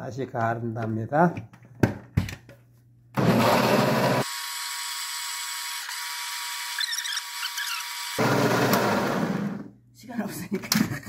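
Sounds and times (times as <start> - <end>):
blender motor whirring: 3.2 - 9.7.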